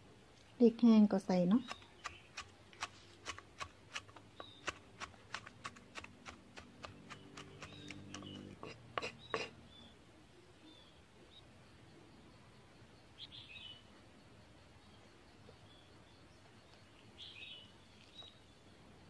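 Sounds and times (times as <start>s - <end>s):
knife chopping on wooden block: 1.6s - 9.5s.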